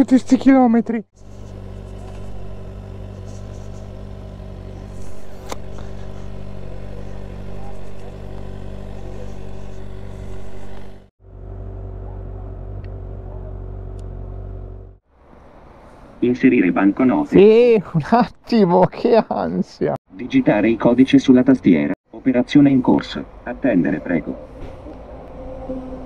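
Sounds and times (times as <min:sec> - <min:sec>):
motorcycle engine running at low revs: 0:01.1 - 0:15.0.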